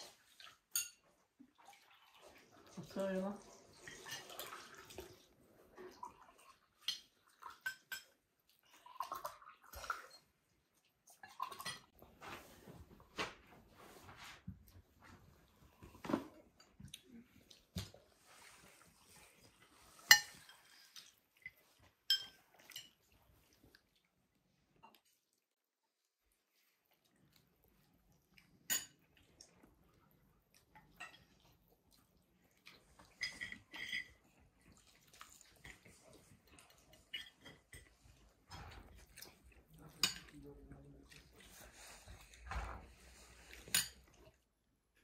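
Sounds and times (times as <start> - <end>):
dishes and cutlery clattering: 0.6 - 1.1, 3.8 - 4.8, 6.8 - 8.2, 11.2 - 11.9, 19.8 - 23.0, 33.0 - 34.4, 35.6 - 39.1, 39.8 - 40.4, 42.4 - 44.2
glass clinking on hard surface: 0.7 - 1.0, 22.1 - 22.4
soft chewing: 14.6 - 44.6.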